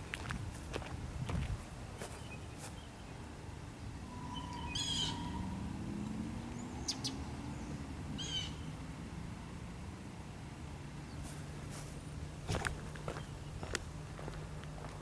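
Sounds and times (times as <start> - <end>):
bird chirping call: 4.0 - 5.6, 6.4 - 8.7.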